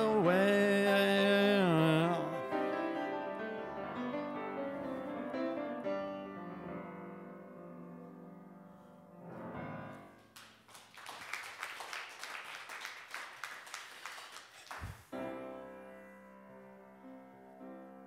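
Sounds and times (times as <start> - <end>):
piano chords: 0.0 - 10.4, 15.1 - 18.0
congregation applauding: 10.3 - 15.1.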